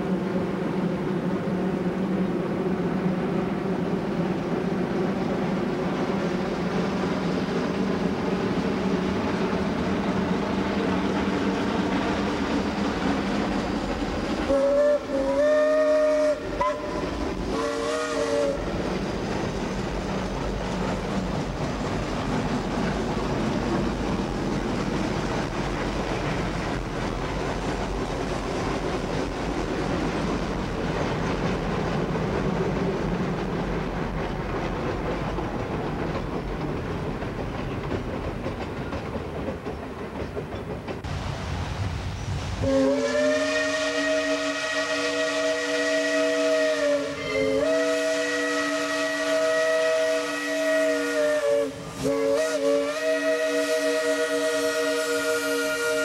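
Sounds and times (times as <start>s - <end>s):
steam train rumble and rail clatter: 0.0s - 56.0s
steam locomotive whistle: 14.4s - 18.8s, 42.6s - 56.0s.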